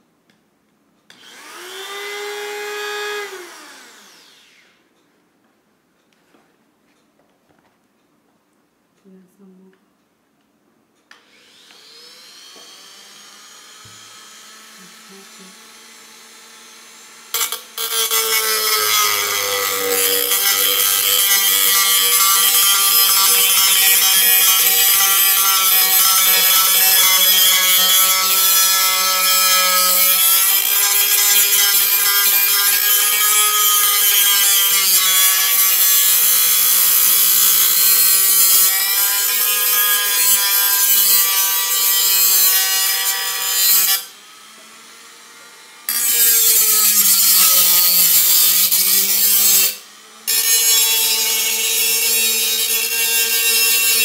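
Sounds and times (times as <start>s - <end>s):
rotary tool motor whine: 1.2s - 4.8s, 11.2s - 37.9s
cutoff disc screeching through metal: 17.4s - 44.1s.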